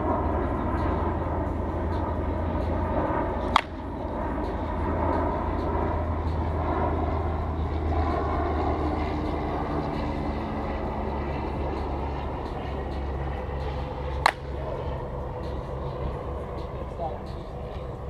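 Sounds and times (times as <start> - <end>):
low outdoor rumble: 0.0 - 18.0
softball bat cracking a ball: 3.4 - 3.8, 14.1 - 14.6.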